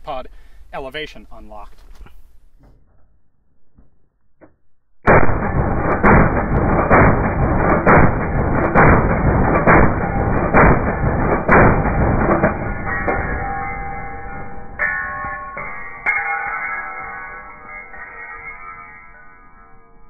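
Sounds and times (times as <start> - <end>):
slowed machine gun blasts: 5.1 - 14.8.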